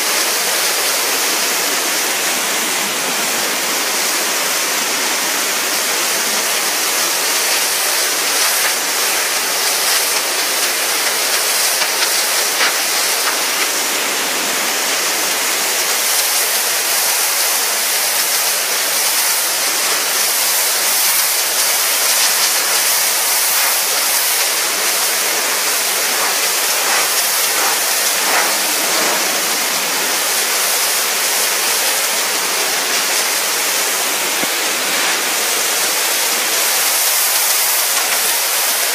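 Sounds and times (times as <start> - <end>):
pressure washer spraying paving: 0.0 - 38.9.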